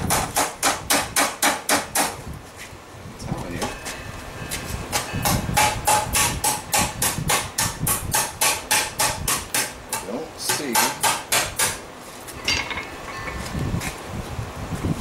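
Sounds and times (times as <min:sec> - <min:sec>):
hammer striking metal on anvil: 0:04.9 - 0:11.8.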